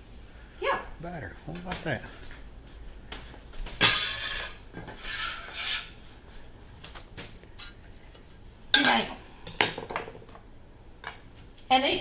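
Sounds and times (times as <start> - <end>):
spatula scraping glass bowl: 3.8 - 6.0.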